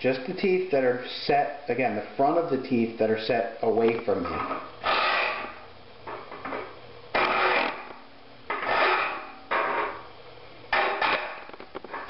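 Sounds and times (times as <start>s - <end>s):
file rasping on saw teeth: 4.8s - 5.6s, 7.2s - 7.8s, 8.6s - 9.3s.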